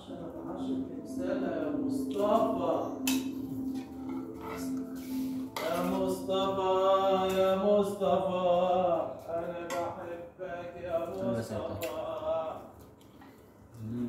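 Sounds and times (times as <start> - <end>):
person singing long notes: 0.0 - 12.8
cutlery clinking on dishes: 3.0 - 6.2, 7.2 - 7.7, 9.6 - 10.0.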